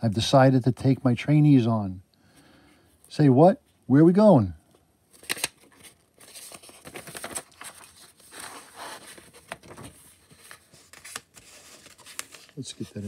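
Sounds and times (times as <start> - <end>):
paper page rustling and crinkling: 5.1 - 13.0
sharp page flick: 5.2 - 5.6.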